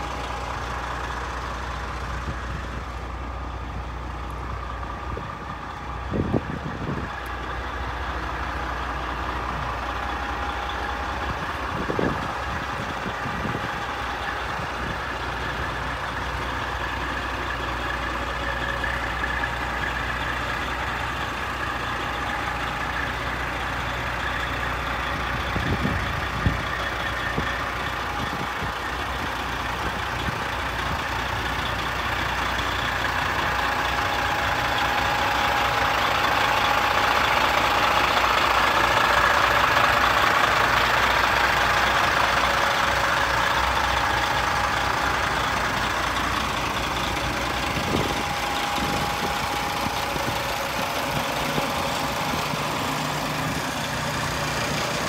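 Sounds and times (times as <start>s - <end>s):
diesel truck engine idling: 0.0s - 55.0s.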